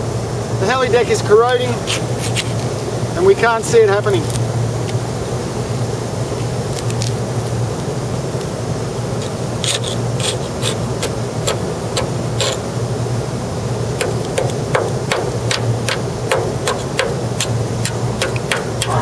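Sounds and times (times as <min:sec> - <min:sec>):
steady low hum: 0:00.0 - 0:19.0
hand scraper scraping metal: 0:09.2 - 0:12.6.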